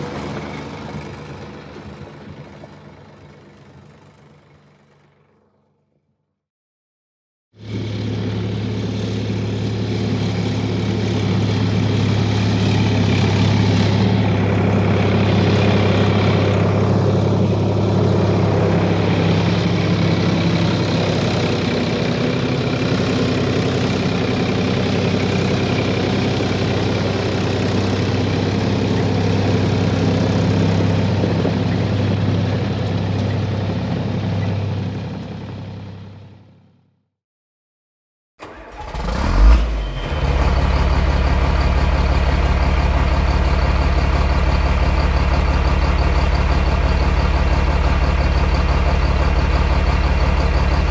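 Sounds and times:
heavy engine humming: 0:00.0 - 0:05.9, 0:07.6 - 0:36.9, 0:39.5 - 0:50.9.

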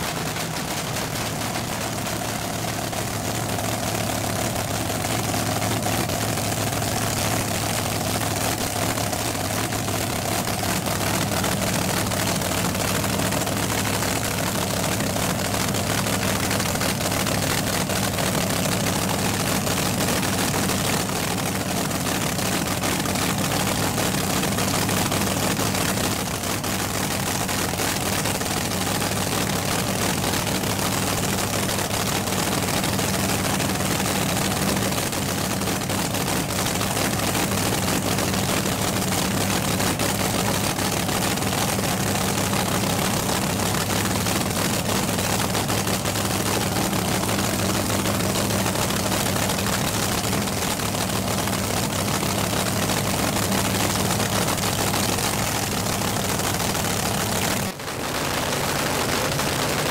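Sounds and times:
drag car engine idling: 0:00.0 - 0:59.9.

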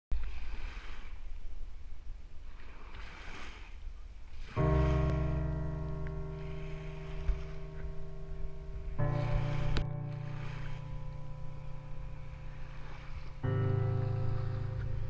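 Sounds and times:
small waves washing on beach: 0:00.1 - 0:15.0
held music chord: 0:04.6 - 0:15.0
low rumble: 0:04.6 - 0:15.0.

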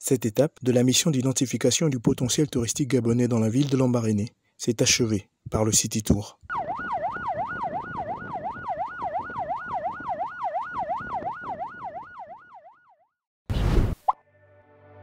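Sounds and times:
vehicle siren yelping: 0:06.5 - 0:13.1
soft music: 0:14.2 - 0:15.0.

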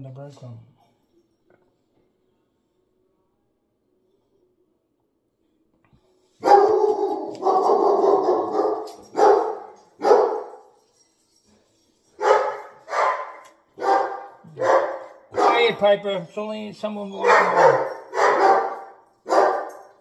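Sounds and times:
dog barking: 0:06.4 - 0:10.6, 0:12.2 - 0:15.8, 0:17.2 - 0:20.0.

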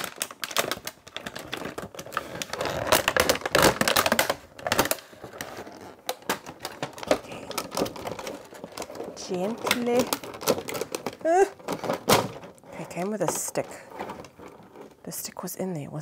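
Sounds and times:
plastic sleeve crinkling: 0:00.0 - 0:15.4.

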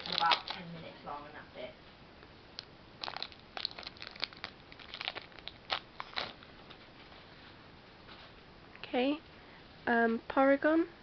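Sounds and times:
foil wrapper crinkling: 0:00.0 - 0:00.7, 0:03.0 - 0:06.8.

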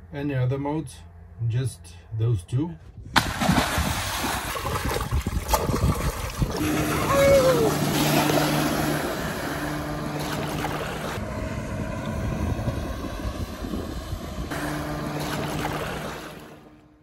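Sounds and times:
motorboat engine humming: 0:00.0 - 0:17.0
wind buffeting microphone: 0:02.9 - 0:09.6, 0:11.0 - 0:14.6
rushing water: 0:03.4 - 0:11.3.

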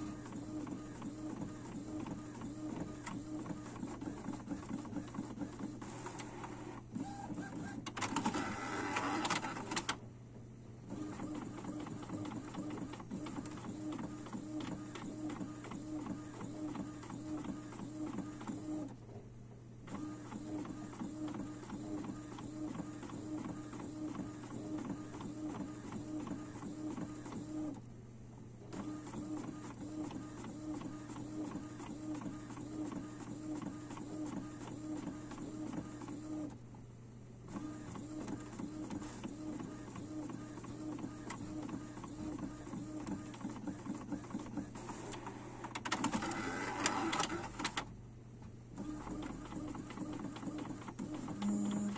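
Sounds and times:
inkjet printer head whirring: 0:00.0 - 0:10.0, 0:37.5 - 0:47.9.

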